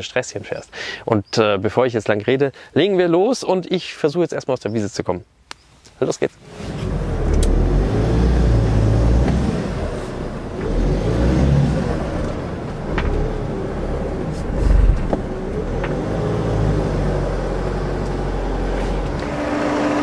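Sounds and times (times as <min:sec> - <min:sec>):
van engine revving: 0:06.4 - 0:20.0.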